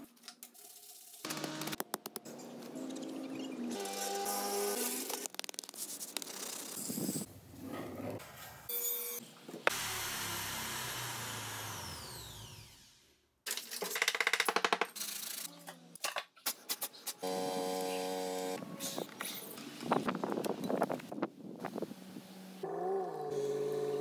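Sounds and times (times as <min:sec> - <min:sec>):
table saw blade winding down: 0:09.7 - 0:13.1.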